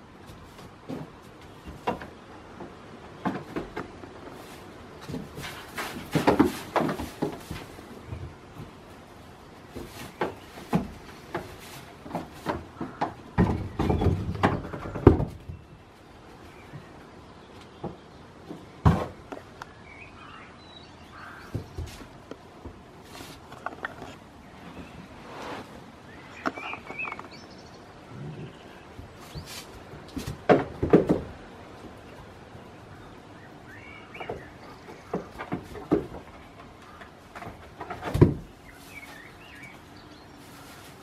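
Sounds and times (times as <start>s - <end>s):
hooves knocking on wood: 0.2s - 15.9s, 21.2s - 25.0s, 28.9s - 32.0s, 34.0s - 39.9s
hay rustling: 4.2s - 8.0s, 8.6s - 13.0s, 22.9s - 23.5s, 38.4s - 41.0s.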